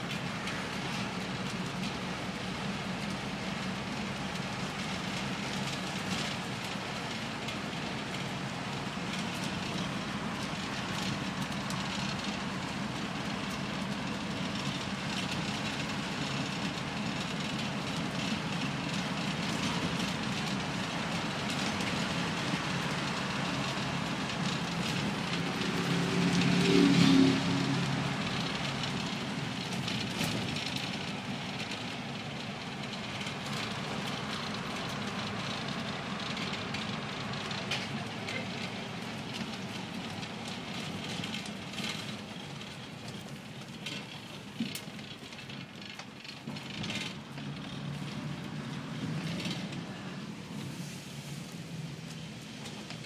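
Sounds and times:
bus diesel engine drone: 0.0 - 53.0
road and body noise: 0.0 - 53.0.

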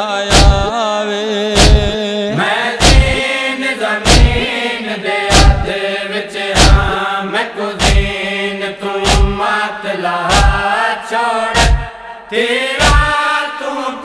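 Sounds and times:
men chanting in chorus: 0.0 - 14.0
heavy chest-beating thumps: 0.3 - 0.7, 1.6 - 2.0, 2.8 - 3.2, 4.0 - 4.5, 5.3 - 5.7, 6.6 - 7.0, 7.8 - 8.2, 9.0 - 9.4, 10.3 - 10.6, 11.6 - 12.0, 12.8 - 13.1.

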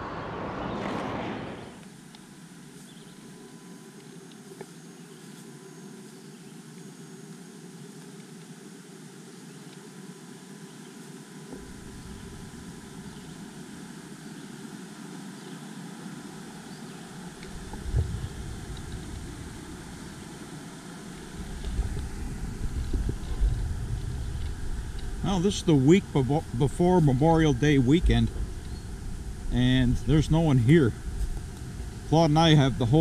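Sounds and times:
low microphone rumbles: 11.6 - 13.6, 17.4 - 33.0.

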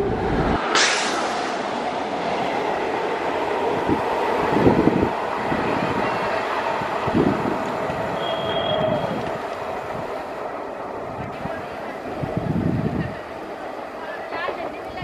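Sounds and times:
train rumbling on rails: 0.0 - 15.0
high wheel squeal: 8.1 - 9.2.

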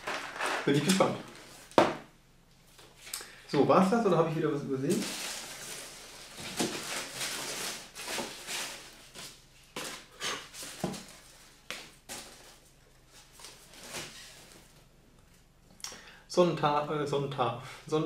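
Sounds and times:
paper rustling and crinkling: 0.0 - 1.8, 4.9 - 14.8.

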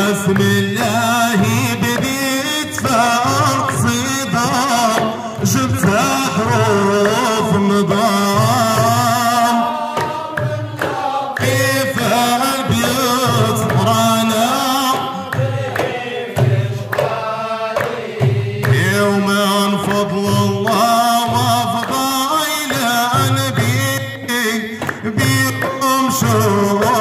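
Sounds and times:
amplified lead singer: 0.0 - 15.6
hand drums beating: 0.0 - 27.0
men singing in a group: 0.0 - 27.0.

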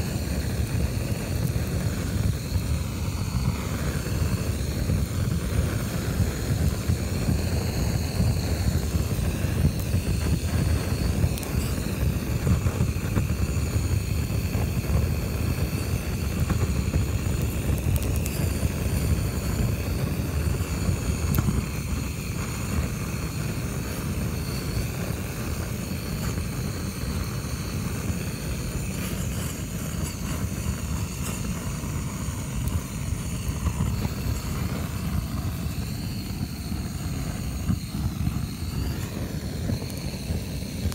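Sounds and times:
gas torch roaring: 0.0 - 40.9.

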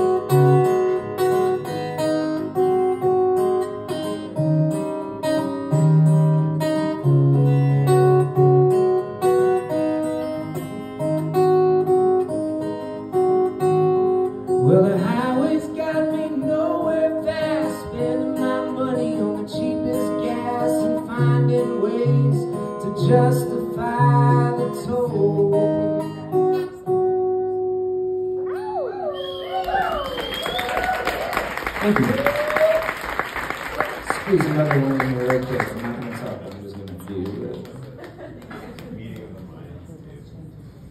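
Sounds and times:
acoustic guitar: 0.0 - 40.9
man singing: 14.6 - 26.1.

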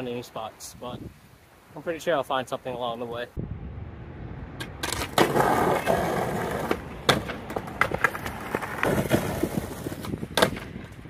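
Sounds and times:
skateboard wheels rolling on asphalt: 4.5 - 11.0
skateboard clacking on pavement: 4.6 - 11.0.

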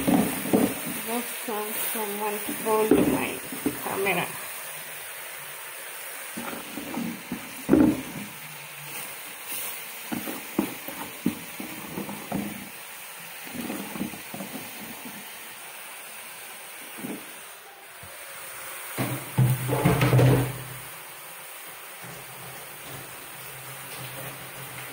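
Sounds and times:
steady hiss: 0.0 - 24.9.

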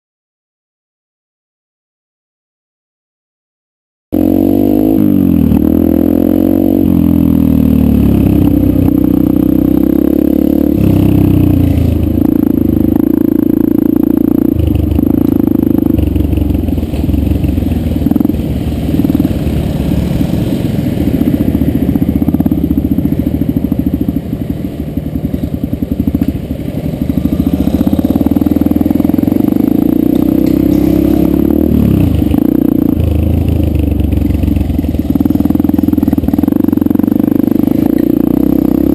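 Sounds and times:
dirt bike engine revving: 4.2 - 38.9.

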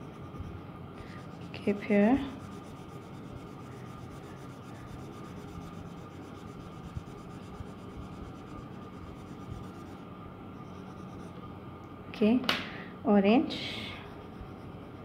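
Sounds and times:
coloured pencil rubbing on paper: 1.0 - 10.0.

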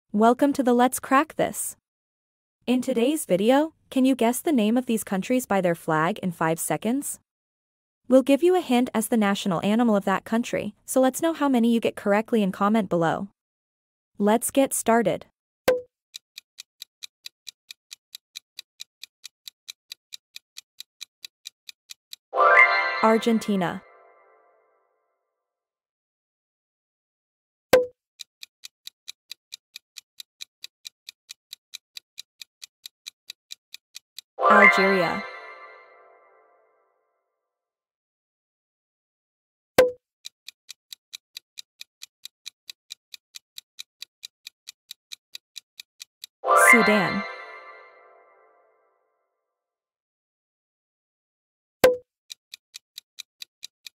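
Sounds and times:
clock ticking: 15.7 - 22.2, 27.8 - 35.7, 39.8 - 47.8, 51.8 - 53.9.

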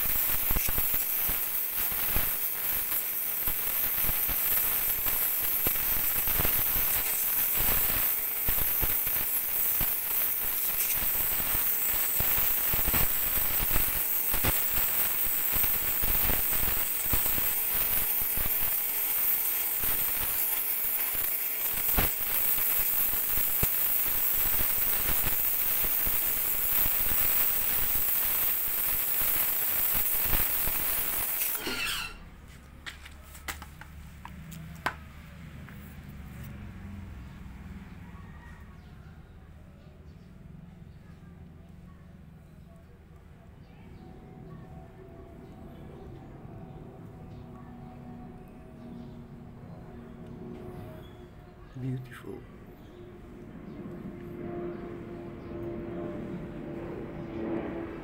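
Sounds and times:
steady hiss: 0.0 - 32.2.

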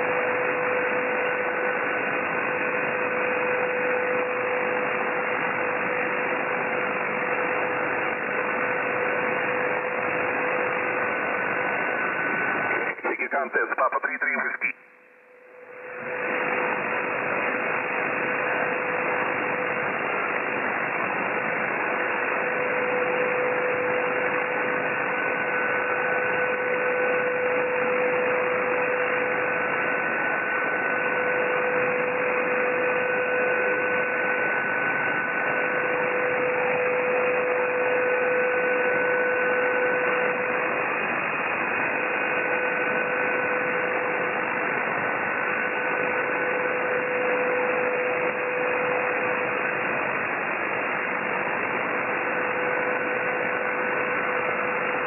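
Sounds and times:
radio static hiss: 12.5 - 14.9.

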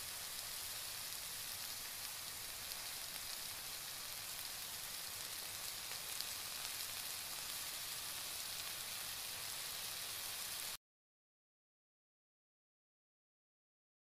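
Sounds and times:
curry sizzling in a pan: 0.0 - 10.8
faint crackles: 0.2 - 10.7.

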